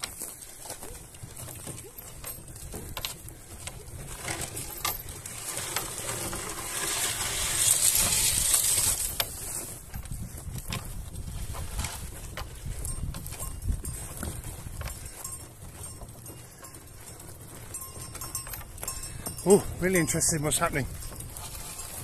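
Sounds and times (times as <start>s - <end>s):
footsteps through dry grass: 0.0s - 22.0s.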